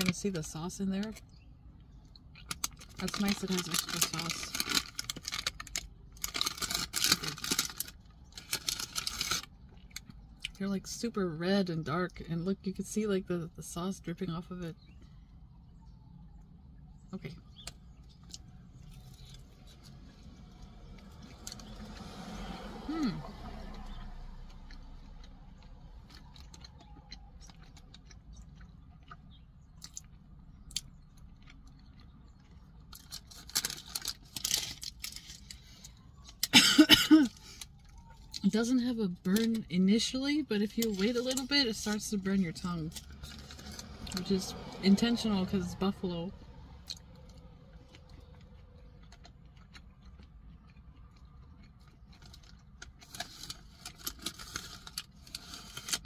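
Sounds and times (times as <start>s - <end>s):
low steady hum: 0.0s - 56.0s
paper bag crinkling: 2.6s - 9.5s, 32.9s - 35.5s, 52.2s - 56.0s
person chewing: 23.8s - 35.6s, 46.8s - 56.0s.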